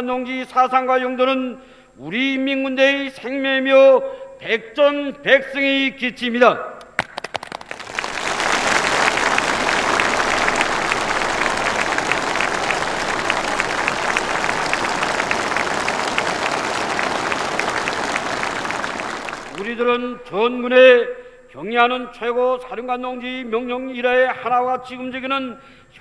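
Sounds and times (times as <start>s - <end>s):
crowd applauding: 7.0s - 20.0s.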